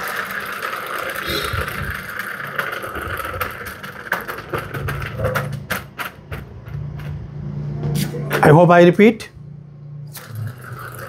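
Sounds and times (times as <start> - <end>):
spinning wheel whir: 0.0 - 7.4, 10.1 - 11.0.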